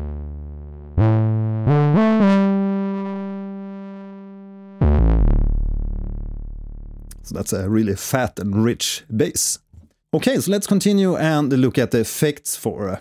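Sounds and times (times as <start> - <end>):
synth bass gliding notes: 0.0 - 7.4.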